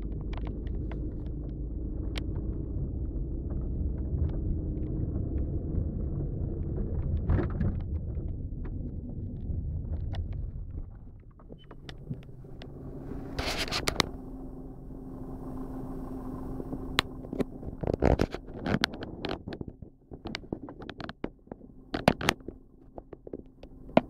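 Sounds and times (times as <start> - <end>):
low engine hum: 0.0 - 24.0
low road rumble: 0.0 - 24.0
irregular knocks and clicks: 16.7 - 24.0.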